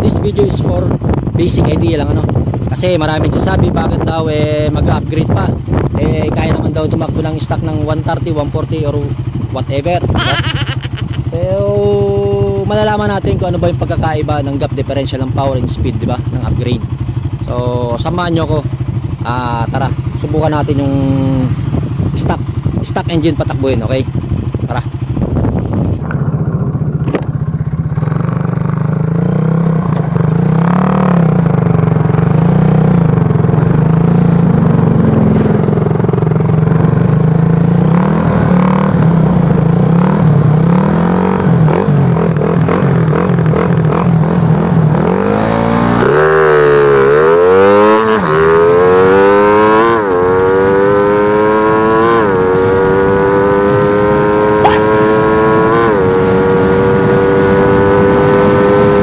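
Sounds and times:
rush of wind noise: 0.0s - 7.0s, 21.4s - 23.0s, 24.0s - 27.5s, 48.9s - 59.0s
motorcycle engine running hard: 0.0s - 59.0s.

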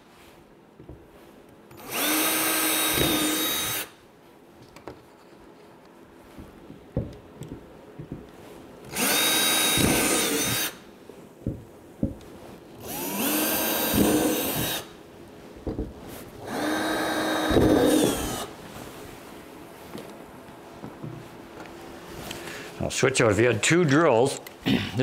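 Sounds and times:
cordless drill whining: 1.7s - 3.9s, 8.9s - 10.8s, 12.8s - 14.9s, 16.4s - 18.5s.

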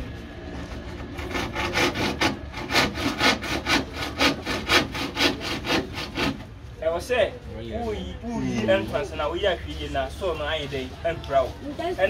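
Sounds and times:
hand saw cutting wood: 0.6s - 6.5s.

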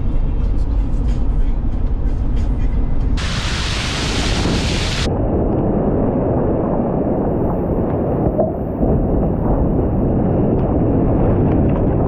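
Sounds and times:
low road rumble: 0.0s - 12.0s
bright hiss: 3.2s - 5.1s.

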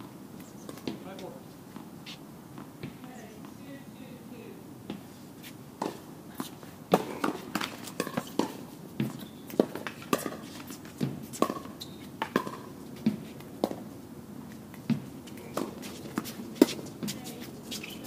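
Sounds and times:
tennis balls bouncing on court: 0.6s - 1.9s, 2.5s - 3.8s, 5.8s - 13.9s, 14.5s - 18.0s
tennis balls hit by racket: 5.8s - 13.9s, 14.6s - 18.0s.

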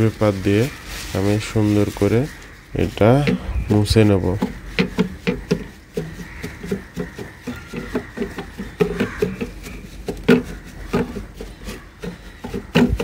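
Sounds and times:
tissue paper scuffing on circuit board: 0.0s - 13.0s.

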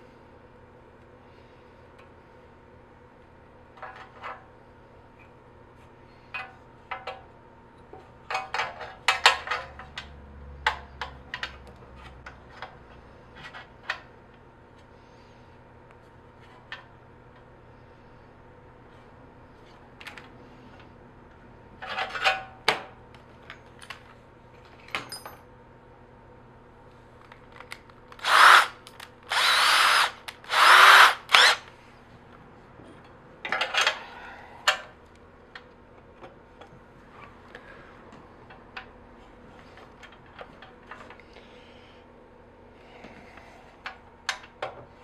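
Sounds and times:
power drill bursts: 28.2s - 31.7s.

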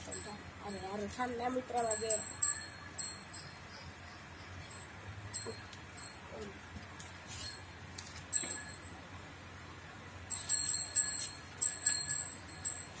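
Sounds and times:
small metal bell ringing: 0.0s - 3.9s, 4.6s - 6.5s, 7.3s - 9.0s, 10.3s - 13.0s.

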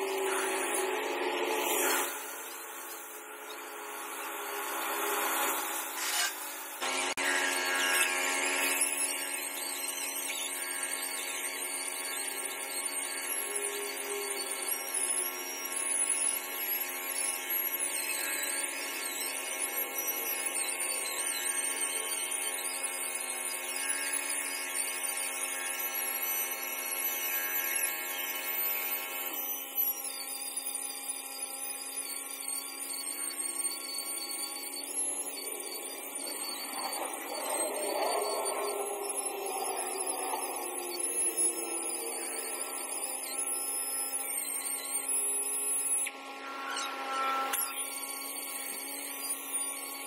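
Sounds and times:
stone polisher motor whine: 0.0s - 50.0s
rough grinding noise: 4.5s - 8.9s.

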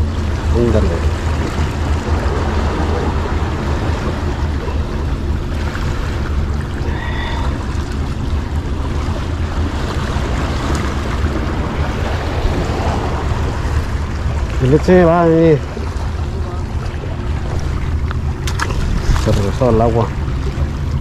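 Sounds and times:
waves washing against rocks: 0.0s - 21.0s
wind rumble on microphone: 0.0s - 21.0s.

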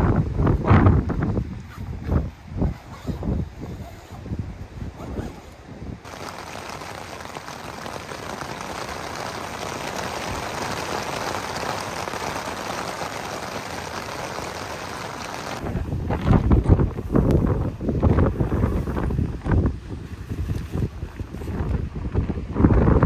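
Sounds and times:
wind buffeting microphone: 0.0s - 23.0s
rain on tent fabric: 6.0s - 22.5s.

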